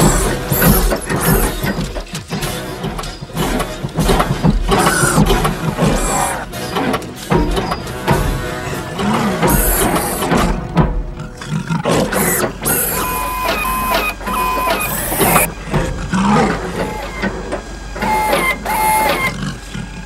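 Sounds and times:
film score music: 0.0 - 15.5
bursts of mechanical noise: 0.0 - 20.0
robotic servo whirs: 0.0 - 20.0
electronic tones: 12.7 - 15.5, 16.8 - 17.3, 18.0 - 19.4.

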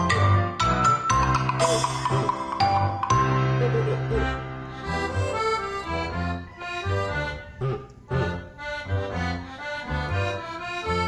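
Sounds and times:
held melody over repeating bass: 0.0 - 11.0.

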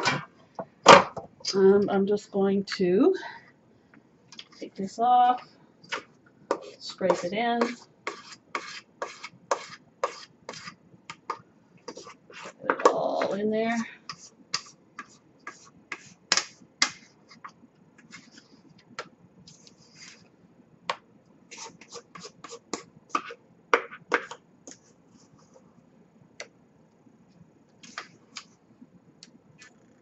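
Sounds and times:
spatula scraping metal bowl: 5.9 - 10.8.

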